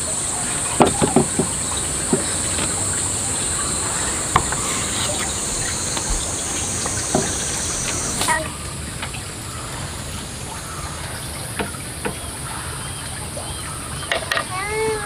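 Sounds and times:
high-pitched insect chorus: 0.0 - 8.5
light knocks: 0.6 - 8.3.

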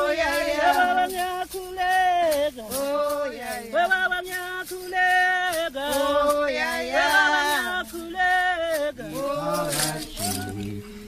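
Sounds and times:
voices singing long sliding notes: 0.0 - 1.3.

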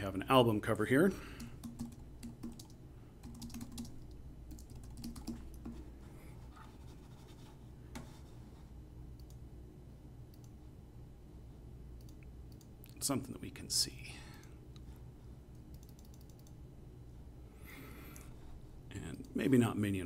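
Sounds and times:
low steady hum: 0.0 - 20.0
typing on a computer keyboard: 1.4 - 5.8, 15.7 - 16.6.

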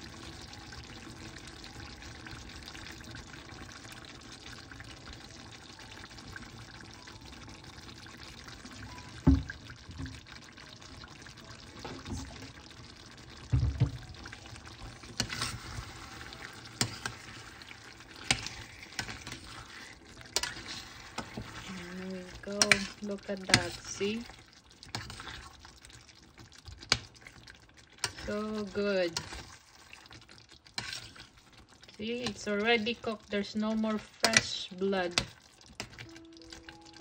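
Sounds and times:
dull thumps: 13.5 - 14.0.

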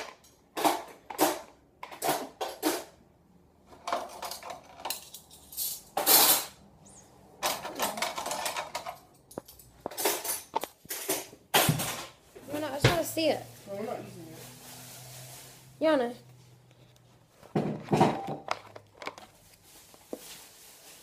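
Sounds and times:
dishes and cutlery clattering: 0.0 - 3.0, 7.4 - 12.2, 17.6 - 18.6.

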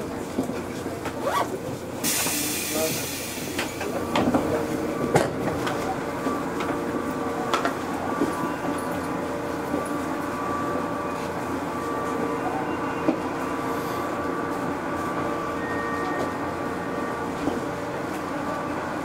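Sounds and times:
electric train hum: 0.0 - 19.0.

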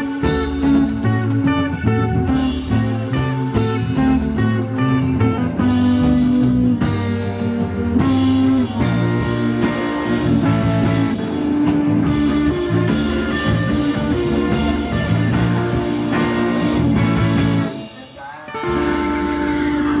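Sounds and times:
bass guitar: 0.0 - 20.0
drums: 0.0 - 20.0
electric guitars: 0.0 - 20.0
person singing: 17.6 - 20.0.

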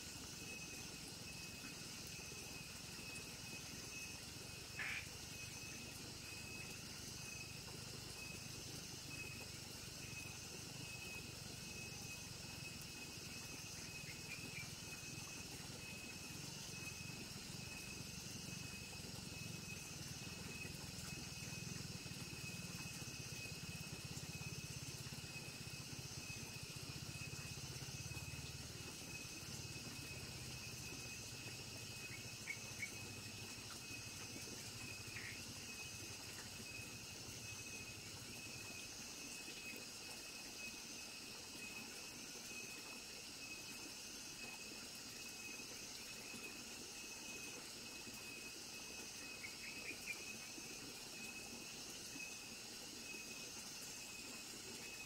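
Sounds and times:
crickets and insects chorus: 0.0 - 55.0.

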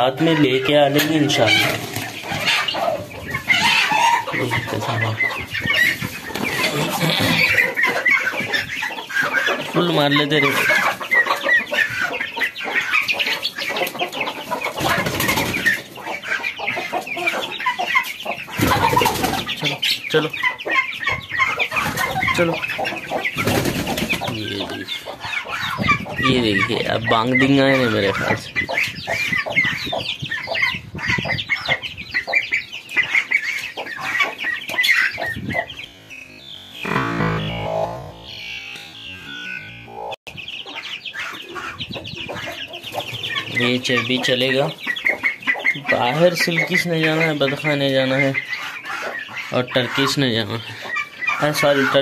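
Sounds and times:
chickens clucking: 0.0 - 52.0
chicks peeping: 0.0 - 52.0
wings flapping: 23.4 - 24.4.

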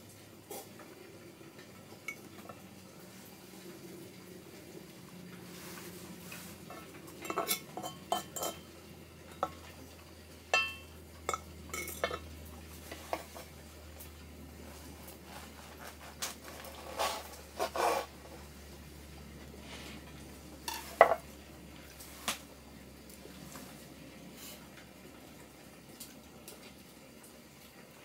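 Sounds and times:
low steady hum: 0.0 - 28.0
cutlery and dishes clinking: 6.7 - 8.7, 10.6 - 12.3, 20.7 - 21.3.

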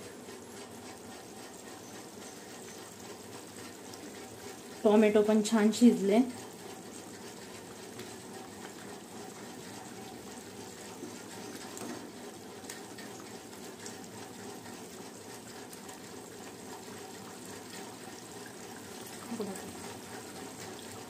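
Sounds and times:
curry bubbling in a pot: 0.0 - 21.0.

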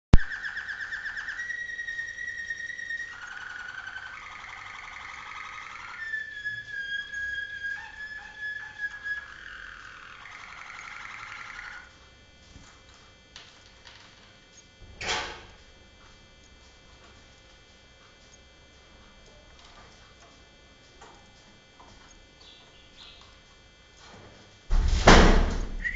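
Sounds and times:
canary singing trills and whistles: 0.1 - 11.9, 21.3 - 23.4.

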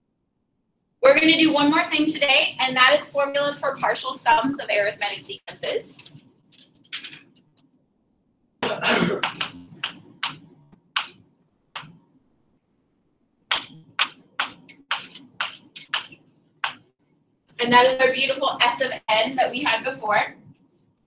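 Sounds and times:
marker writing on a board: 13.5 - 16.9.

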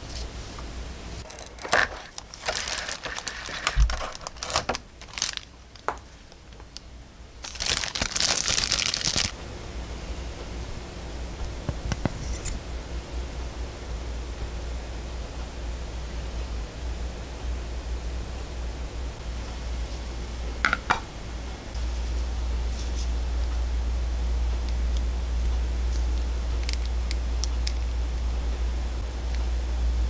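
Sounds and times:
plastic bag crinkling: 1.2 - 6.3, 7.4 - 9.4.

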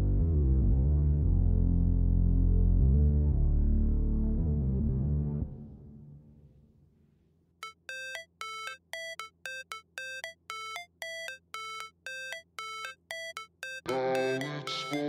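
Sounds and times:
electronic music: 7.6 - 15.0
repeated synth note pattern: 7.6 - 15.0.

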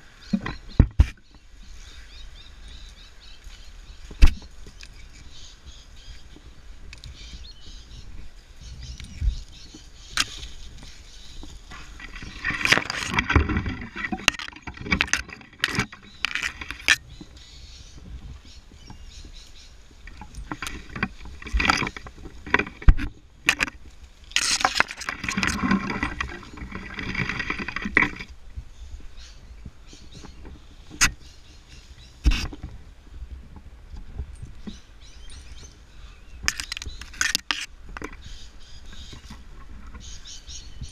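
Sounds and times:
rustling of rope and gear: 0.3 - 40.9
device scraping on rope: 11.7 - 17.2, 24.3 - 28.3.

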